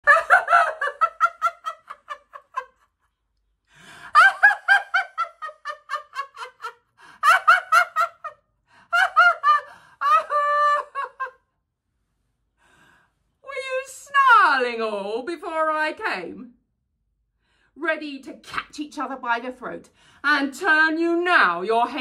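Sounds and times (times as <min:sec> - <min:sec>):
woman laughing theatrically: 0:00.0 - 0:02.9, 0:04.0 - 0:11.4.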